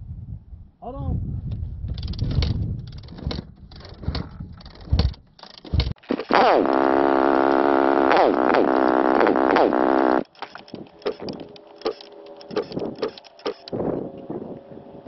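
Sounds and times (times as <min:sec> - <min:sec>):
knocks and clatter: 0:01.9 - 0:06.3
engine throttle blips: 0:02.9 - 0:15.0.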